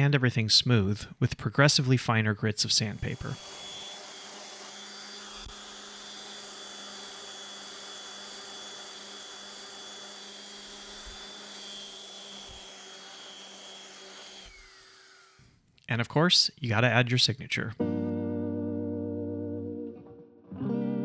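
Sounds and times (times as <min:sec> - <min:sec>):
sander pad rasping on wood: 0:03.0 - 0:15.4
orbital sander motor whine: 0:03.0 - 0:15.5.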